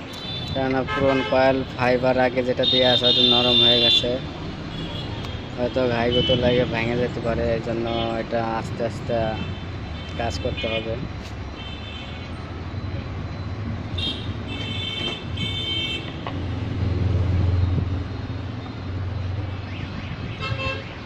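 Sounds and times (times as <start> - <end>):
traffic engine rumble: 0.0 - 21.0
vehicle horn tooting: 14.0 - 16.2, 20.3 - 20.9.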